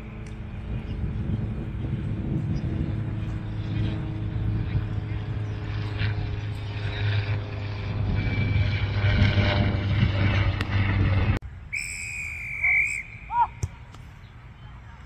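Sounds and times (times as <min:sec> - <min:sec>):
rumbling noise with low hum: 0:00.0 - 0:11.5
referee's whistle blast: 0:11.7 - 0:13.6.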